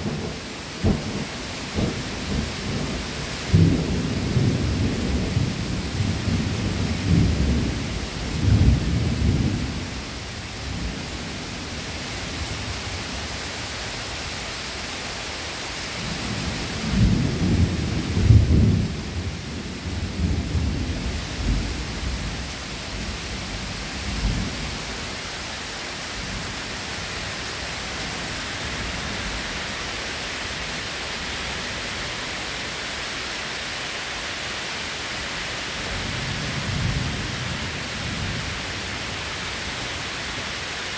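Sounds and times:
thunder rumbling: 0.0s - 9.8s, 16.1s - 24.7s
rain hissing: 0.0s - 40.9s.

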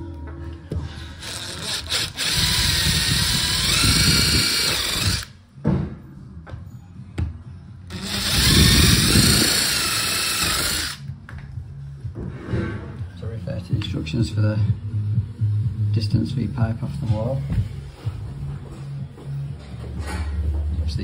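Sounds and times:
power drill whine: 1.2s - 5.3s, 7.9s - 11.0s.

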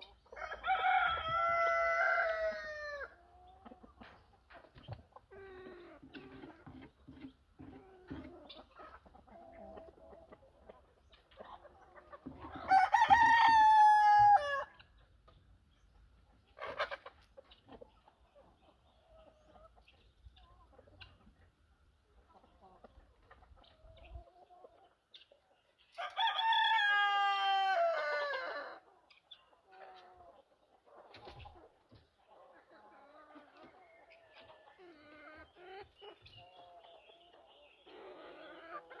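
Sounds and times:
rooster crowing: 0.4s - 3.0s, 12.7s - 14.7s, 26.0s - 28.5s.

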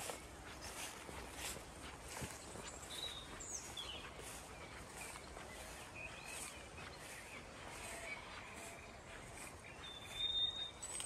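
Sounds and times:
birds singing: 0.0s - 11.0s
footsteps through long grass: 0.0s - 11.0s.

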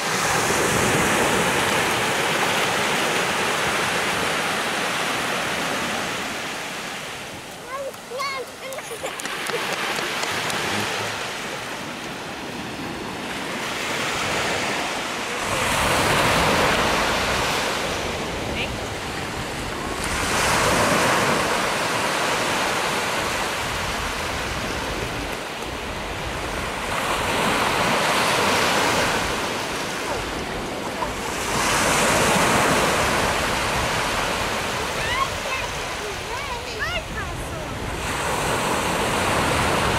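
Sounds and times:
small waves breaking on beach: 0.0s - 39.9s.

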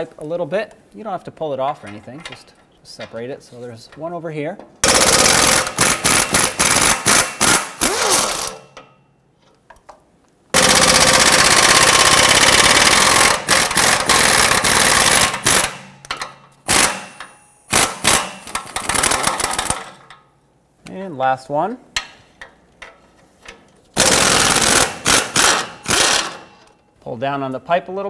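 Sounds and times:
power wrench rattling: 4.8s - 8.8s, 10.6s - 20.2s, 24.0s - 26.8s.

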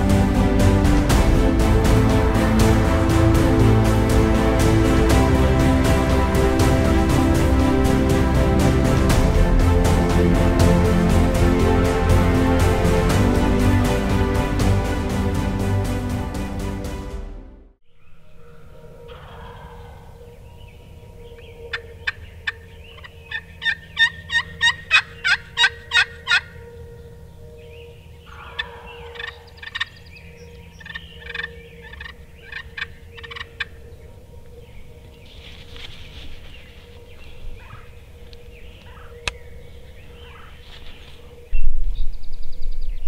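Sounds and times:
turkey calling: 18.0s - 41.6s.

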